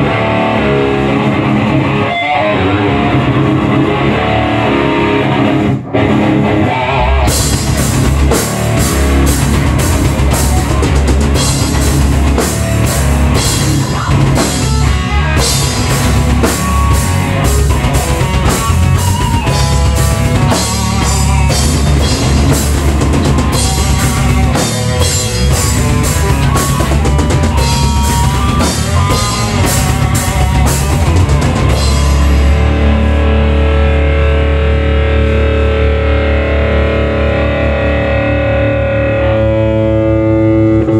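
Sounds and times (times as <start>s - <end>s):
electric guitar playing heavy rock: 0.0s - 40.9s
drum kit with cymbals: 7.2s - 32.7s.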